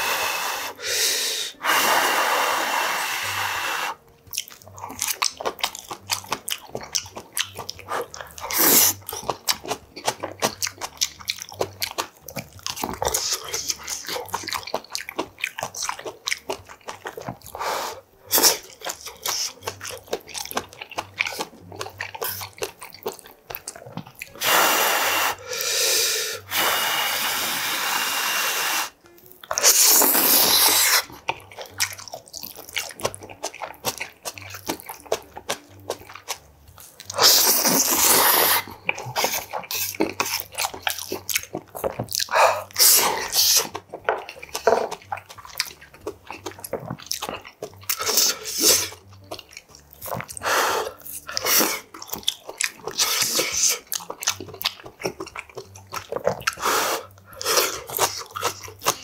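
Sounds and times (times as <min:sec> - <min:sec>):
loud slurping of noodles: 0:00.0 - 0:04.0, 0:08.5 - 0:09.0, 0:24.4 - 0:29.0, 0:29.6 - 0:31.1, 0:37.1 - 0:39.4, 0:48.0 - 0:48.9, 0:50.4 - 0:51.9, 0:56.6 - 0:58.0
wet chewing: 0:00.0 - 0:59.0
lip smacks: 0:03.1 - 0:59.0.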